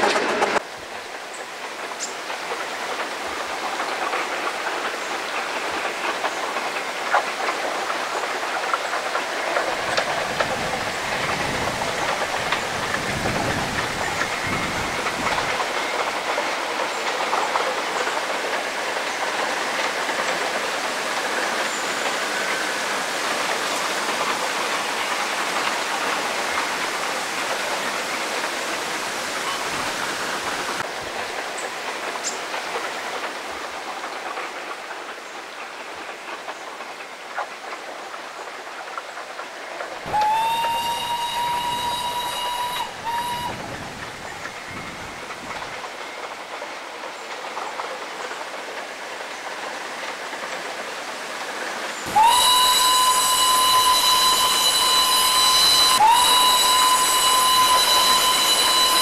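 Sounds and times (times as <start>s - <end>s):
steam hiss: 0.0s - 59.0s
steam locomotive whistle: 9.6s - 16.3s, 40.0s - 45.8s, 52.0s - 59.0s.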